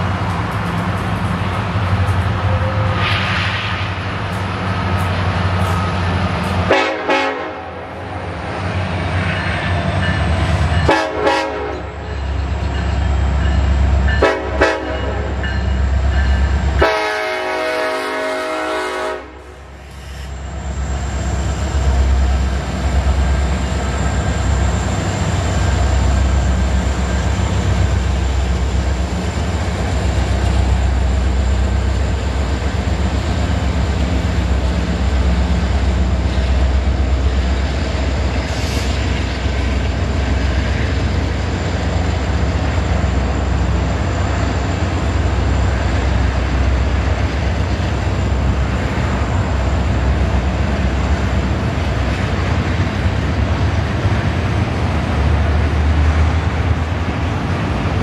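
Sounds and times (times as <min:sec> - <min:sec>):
freight cars rolling on rails: 0:00.0 - 0:07.1, 0:07.9 - 0:17.7, 0:19.5 - 0:58.0
locomotive engines rumbling: 0:00.0 - 0:58.0
locomotive air horn blasts: 0:06.7 - 0:07.9, 0:10.9 - 0:12.0, 0:14.2 - 0:15.4, 0:16.8 - 0:19.6.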